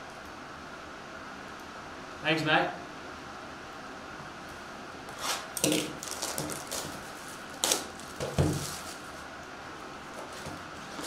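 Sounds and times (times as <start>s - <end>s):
plastic wrap and cardboard rustling: 5.2s - 9.3s, 10.1s - 11.0s.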